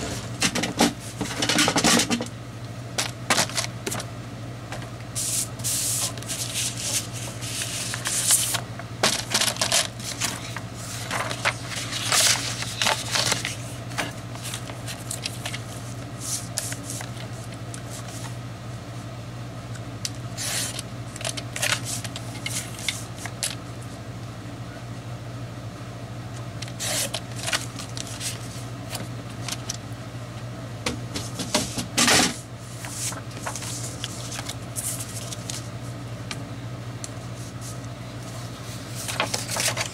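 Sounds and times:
steady low hum: 0.0 - 39.9
paper rasp: 5.2 - 8.6, 20.4 - 20.8, 26.8 - 28.5
paper rustling and sliding: 5.2 - 18.4, 20.4 - 23.6, 26.6 - 29.7, 31.2 - 35.9, 38.6 - 39.9.

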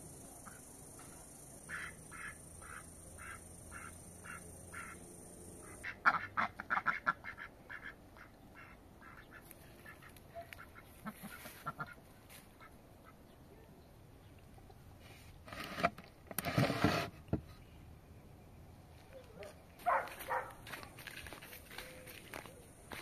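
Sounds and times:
ducks quacking: 1.7 - 5.0, 5.6 - 13.3.

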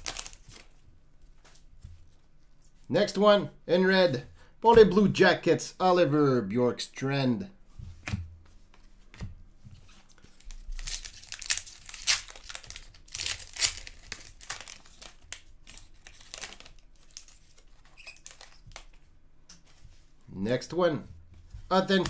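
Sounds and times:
card wrappers crinkling: 0.0 - 0.8, 10.1 - 19.0.

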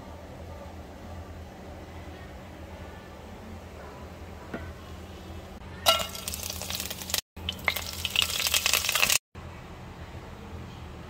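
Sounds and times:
spices sizzling in hot oil: 5.8 - 9.2.

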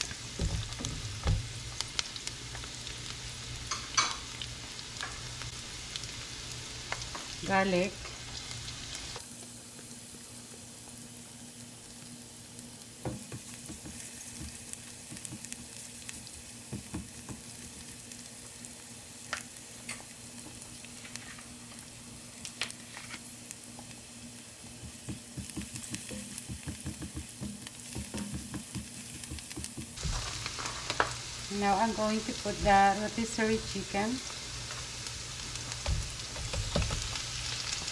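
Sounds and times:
vegetables sizzling in hot oil: 0.0 - 37.9
spatula scraping and tapping pan: 24.8 - 31.2.

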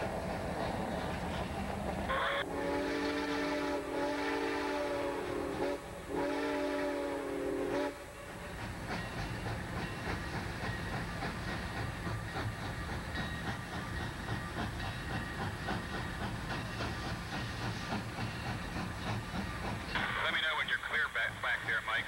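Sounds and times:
steam hiss and rumble: 0.0 - 22.0
steam locomotive exhaust beating: 0.0 - 22.0
steam locomotive whistle chord: 2.1 - 8.6.

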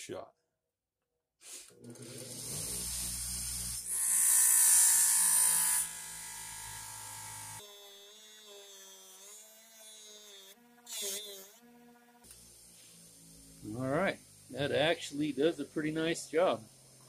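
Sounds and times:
bench grinder motor humming: 1.8 - 17.0
steel scraping on grinding wheel: 3.9 - 11.4.

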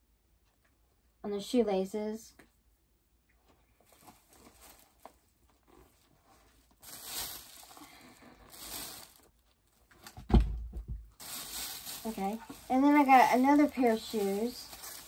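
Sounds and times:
packaging rustling and crinkling: 3.8 - 10.3, 11.1 - 15.0.

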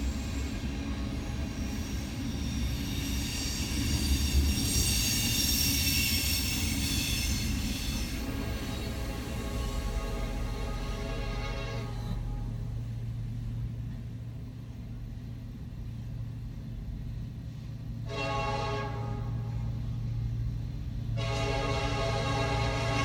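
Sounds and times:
train horn blasts: 6.8 - 12.8, 18.0 - 20.0, 21.0 - 23.0.

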